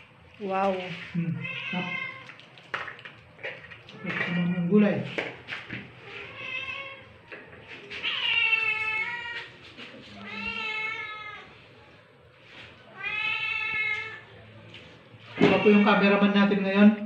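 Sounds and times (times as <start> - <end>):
cat meowing: 1.2 - 2.3, 6.0 - 7.2, 8.0 - 9.5, 10.1 - 11.6, 12.9 - 14.3, 15.3 - 16.1.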